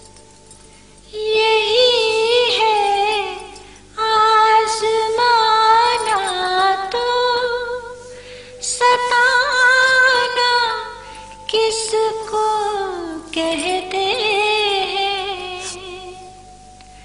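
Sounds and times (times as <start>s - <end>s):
woman singing: 1.1s - 16.5s.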